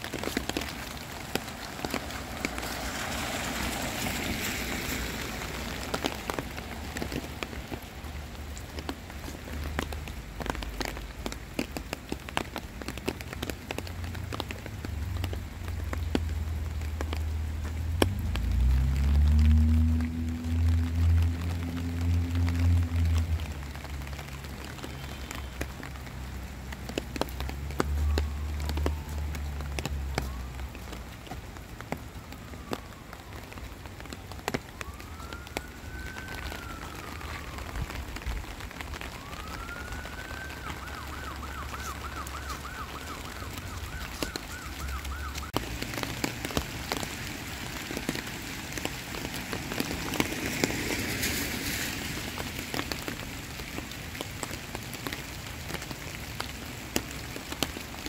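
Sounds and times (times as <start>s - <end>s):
emergency vehicle siren: 0.0s - 7.8s, 18.1s - 26.0s, 27.1s - 53.3s
rain with raindrops tapping: 0.0s - 58.0s.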